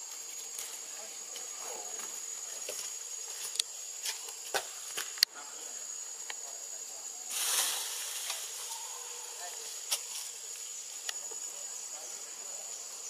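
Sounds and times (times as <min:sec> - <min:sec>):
high-pitched insect drone: 0:00.0 - 0:13.0
brief rustling hiss: 0:07.3 - 0:08.7.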